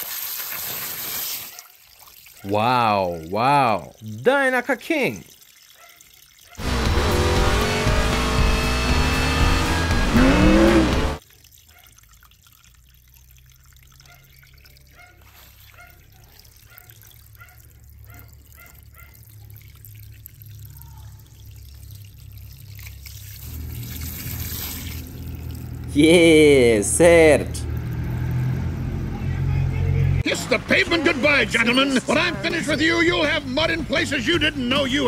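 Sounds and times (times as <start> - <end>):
water trickling and dripping: 0.0 - 6.6, 11.2 - 25.9, 27.6 - 28.8
car sound effects: 6.6 - 11.2, 23.5 - 33.1
loud music: 6.6 - 11.2.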